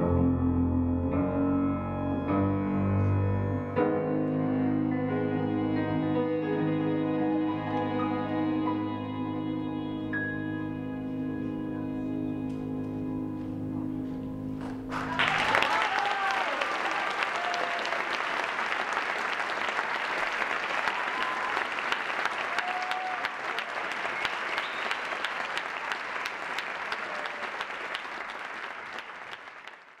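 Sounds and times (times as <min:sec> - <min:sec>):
audience applauding: 0:14.6 - 0:30.0
audience cheering: 0:14.9 - 0:29.8.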